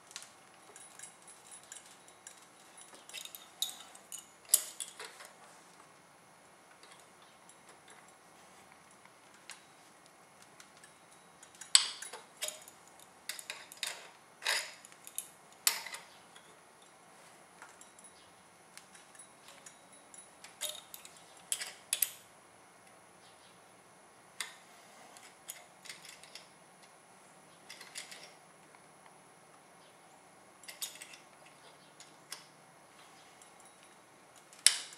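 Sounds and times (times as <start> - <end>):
hand tools clinking on metal: 0.0 - 5.4, 10.6 - 17.0, 17.6 - 22.2, 30.6 - 32.4.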